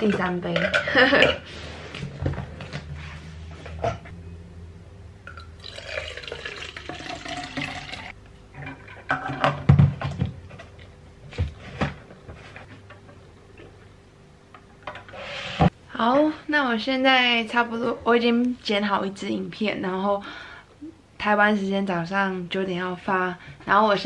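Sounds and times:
kettle and cup clunking: 5.3s - 10.3s
water pouring into plastic cup: 5.6s - 8.1s.

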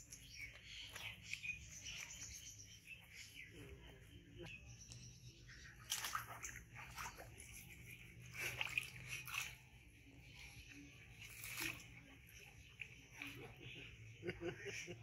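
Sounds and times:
hands squelching soap lather in fur: 0.0s - 3.4s, 5.8s - 14.0s.

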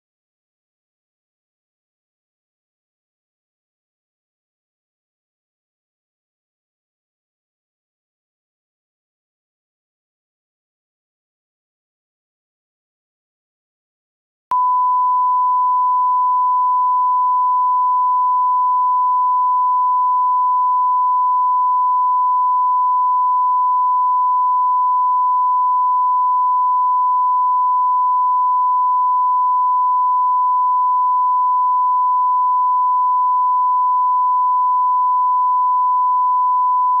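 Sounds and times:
steady test tone beep: 14.5s - 37.0s.

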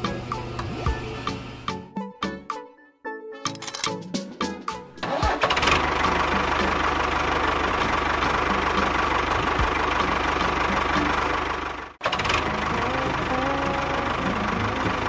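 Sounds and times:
tractor engine knocking: 5.0s - 15.0s.

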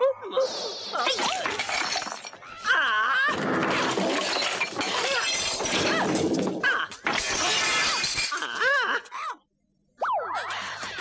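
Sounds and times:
crashing and breaking noises: 1.1s - 8.6s.

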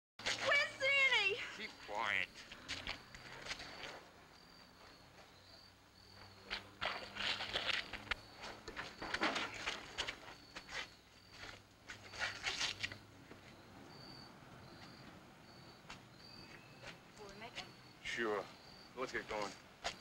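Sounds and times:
crickets chirping: 0.2s - 20.0s
shuffling footsteps: 6.2s - 13.6s.

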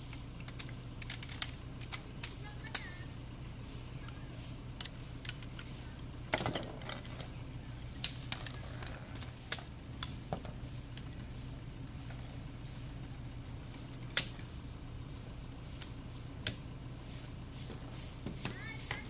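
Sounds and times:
metal chair poles clicking: 4.8s - 10.2s.

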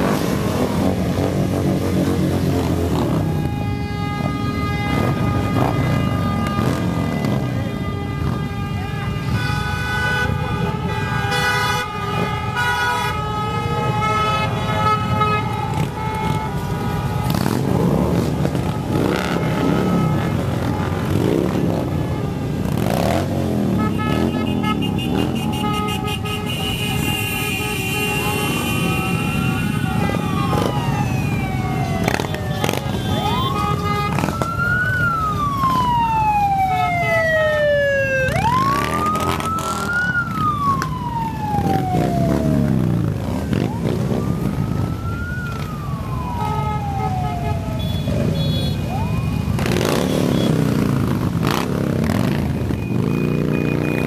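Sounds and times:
motorcycle engines rumbling past: 0.0s - 3.5s, 14.8s - 54.0s
siren wailing: 27.7s - 54.0s.

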